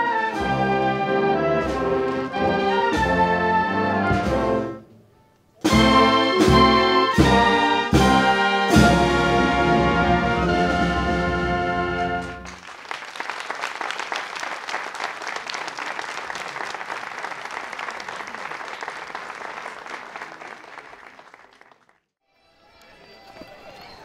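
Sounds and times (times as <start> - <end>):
audience applause: 12.4 - 22.1, 22.8 - 24.0.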